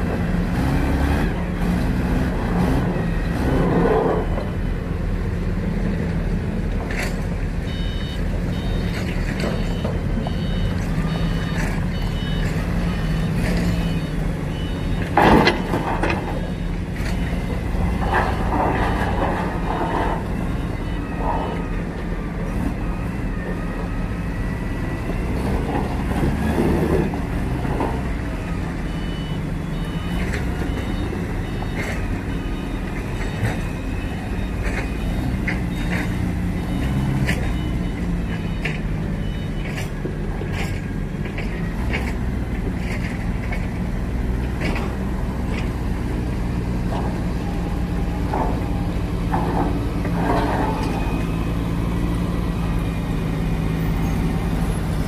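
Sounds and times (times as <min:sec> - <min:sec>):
forklift engine running: 0:00.0 - 0:55.0
reversing beeper: 0:07.6 - 0:39.9, 0:46.9 - 0:53.0.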